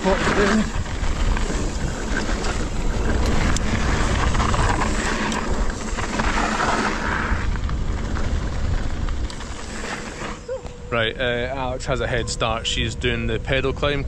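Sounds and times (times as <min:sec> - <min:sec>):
bike clicks and rattles: 0:00.0 - 0:10.8
tyres rumbling on trail: 0:00.0 - 0:14.0
wind rushing over microphone: 0:00.0 - 0:14.0.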